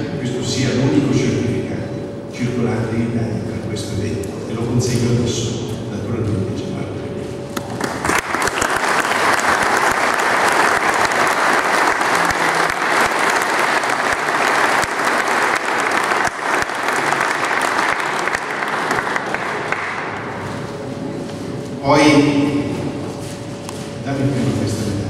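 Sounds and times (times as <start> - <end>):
audience applauding: 7.6 - 20.4.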